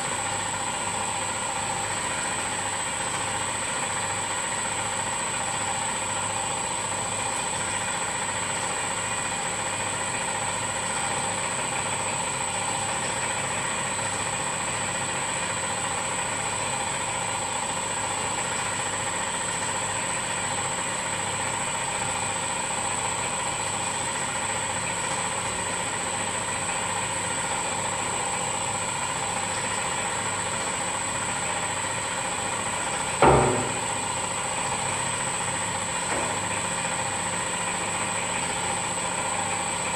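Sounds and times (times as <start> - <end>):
machine hum with high whine: 27.3 - 39.9
sharp knock: 33.2 - 34.2.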